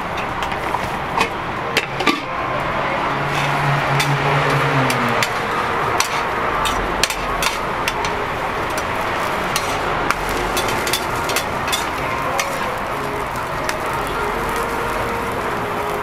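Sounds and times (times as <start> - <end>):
spatulas scraping a steel griddle: 3.2 - 13.9
food sizzling on griddle: 3.2 - 16.0.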